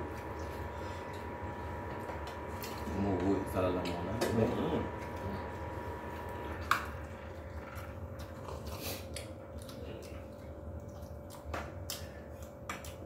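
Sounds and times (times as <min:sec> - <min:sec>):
faint steady hum: 0:00.0 - 0:13.0
chewing: 0:06.6 - 0:13.0.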